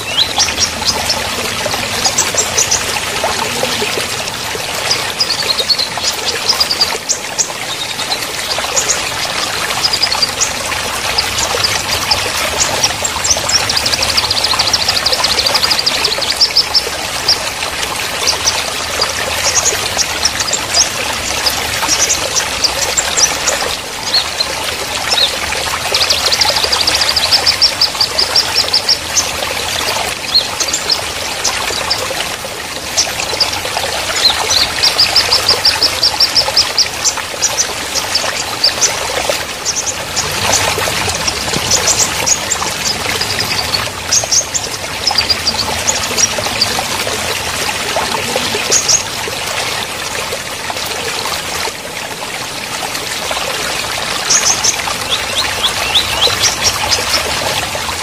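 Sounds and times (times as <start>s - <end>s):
small birds chirping: 0.0s - 32.2s, 32.9s - 49.2s, 54.2s - 57.6s
stream rushing over rocks: 0.0s - 58.0s.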